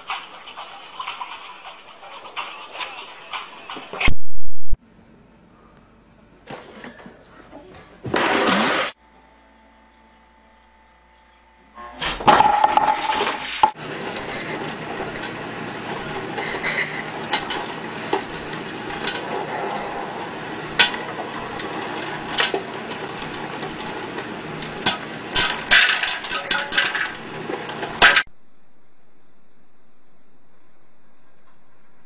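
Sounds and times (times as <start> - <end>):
popcorn popping: 12.3 - 28.3
steady sizzle: 13.8 - 28.3.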